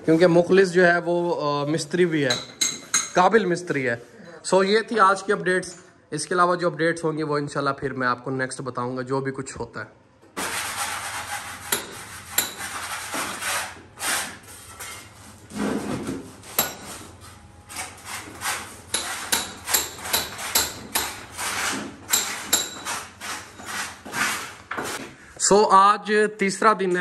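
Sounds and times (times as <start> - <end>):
sharp knocks and scrapes: 10.4 - 25.1
hand tool scraping wall: 10.4 - 25.2.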